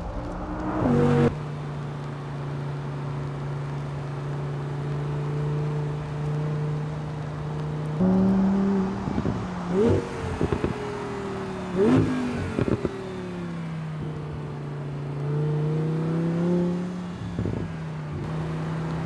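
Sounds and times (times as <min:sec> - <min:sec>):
exhaust crackles: 0:00.0 - 0:11.0
sports car engine driving by: 0:00.0 - 0:17.0.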